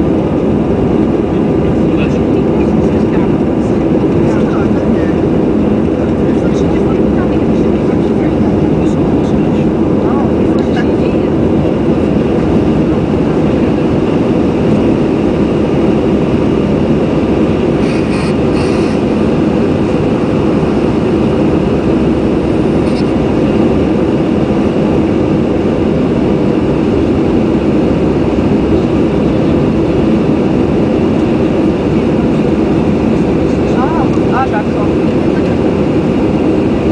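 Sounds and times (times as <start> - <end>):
jet engines roaring: 0.0 - 36.9
rushing air: 11.3 - 34.1.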